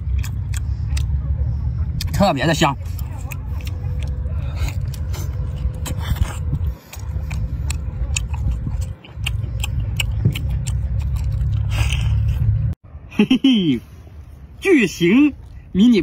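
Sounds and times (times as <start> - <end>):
person chewing wet food: 0.0 - 12.8
steady low rumble: 0.0 - 16.0.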